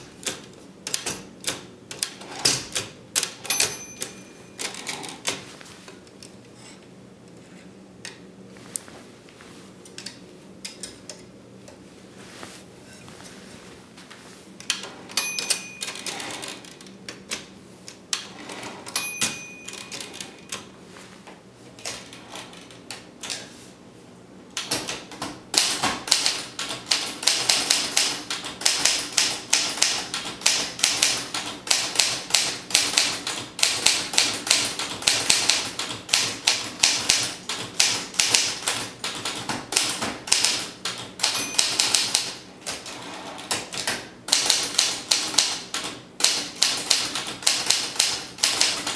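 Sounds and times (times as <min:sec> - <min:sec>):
typewriter typing: 0:00.0 - 0:05.5, 0:14.7 - 0:17.5, 0:18.1 - 0:20.7, 0:24.6 - 0:48.9
typewriter bell ringing: 0:03.4 - 0:04.9, 0:15.1 - 0:16.6, 0:18.9 - 0:20.6, 0:41.2 - 0:42.4.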